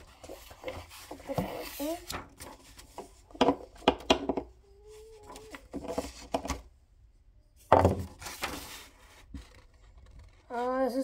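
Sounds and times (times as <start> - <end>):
paper thump and rustle: 7.7 - 10.2.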